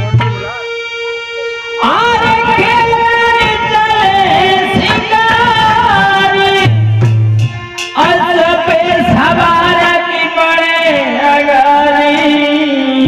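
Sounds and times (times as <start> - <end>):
harmonium holding notes: 0.0 - 13.0
man singing into microphone: 1.8 - 6.8, 8.0 - 13.0.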